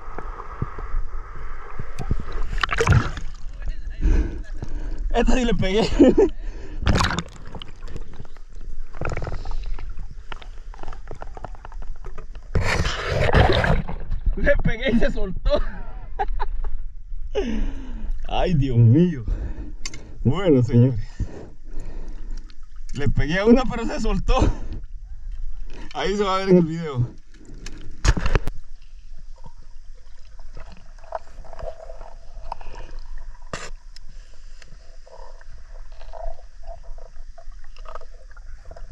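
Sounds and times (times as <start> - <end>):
underwater water rushing: 0.0 - 5.7, 6.7 - 14.5
underwater clicks and crackles: 1.7 - 3.8, 4.6 - 14.4, 21.1 - 23.8, 24.6 - 26.4, 27.1 - 38.9
faint underwater clicks: 19.7 - 20.2, 21.1 - 23.2, 27.1 - 38.9.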